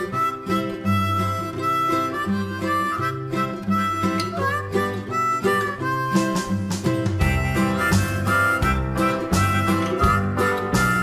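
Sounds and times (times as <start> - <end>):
guitar: 0.0 - 11.0
harmonica: 0.0 - 11.0
bass line: 3.3 - 11.0.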